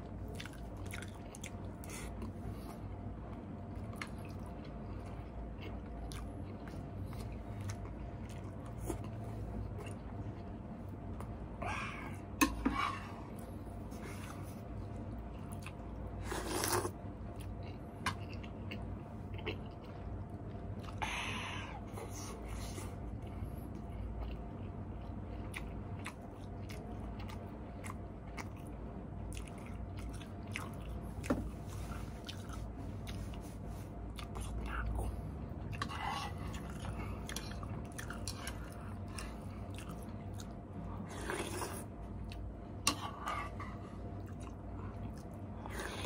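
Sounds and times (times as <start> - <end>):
close chewing of noodles: 0.0 - 12.4, 13.1 - 46.0
low hum: 0.0 - 46.0
breathy sounds: 11.6 - 13.4, 20.9 - 24.2.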